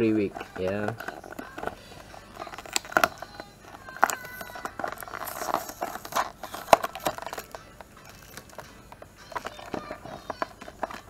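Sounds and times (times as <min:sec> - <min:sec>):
plastic toy parts clicking: 0:02.4 - 0:11.0.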